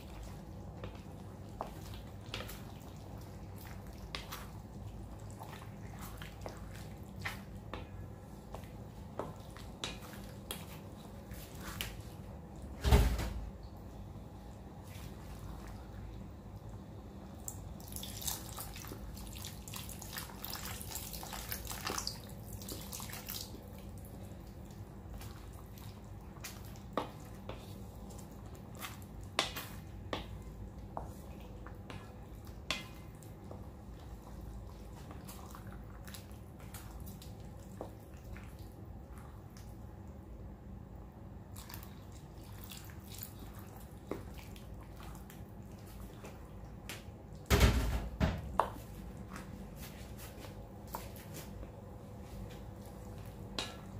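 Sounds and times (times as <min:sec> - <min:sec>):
stew bubbling in a wok: 0:00.0 - 0:12.6, 0:17.6 - 0:47.4.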